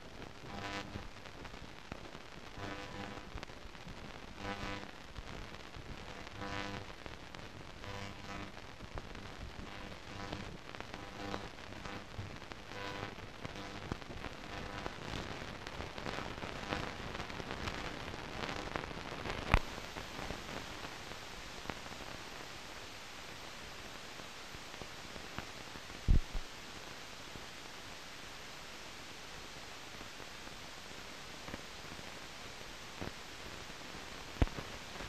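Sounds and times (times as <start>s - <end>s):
film soundtrack hiss and crackle: 0.0s - 35.0s
thumps: 26.1s - 26.4s.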